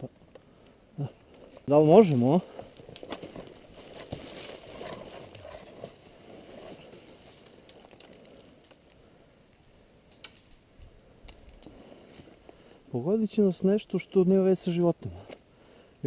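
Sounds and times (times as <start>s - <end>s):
twig snaps: 7.0s - 9.0s, 10.1s - 11.8s.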